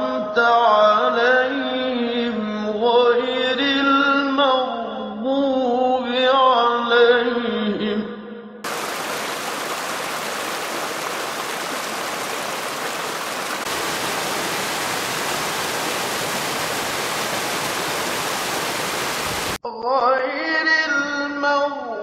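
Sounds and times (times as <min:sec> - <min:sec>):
waterfall over rocks: 0:08.7 - 0:19.6.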